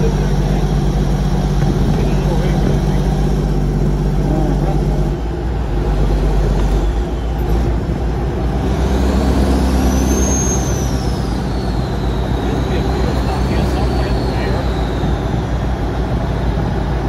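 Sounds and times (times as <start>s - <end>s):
truck diesel engine from inside cab: 0.0s - 17.0s
thin high whistle: 9.5s - 15.6s.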